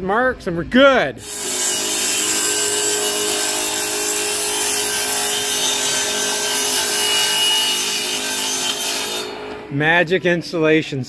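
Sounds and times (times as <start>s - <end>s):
saw blade cutting wood: 1.2s - 9.6s
table saw motor whine: 1.2s - 9.7s.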